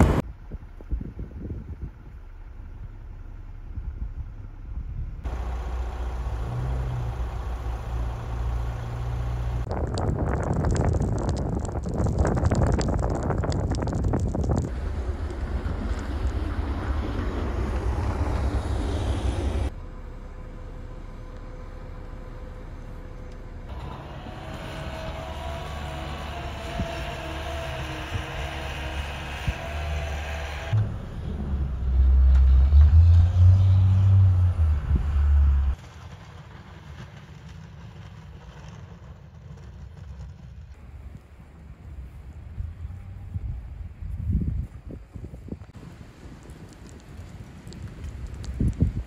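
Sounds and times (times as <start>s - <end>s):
vehicle engine idling: 0.0s - 9.7s, 14.7s - 32.0s
low steady rumble: 0.0s - 49.0s.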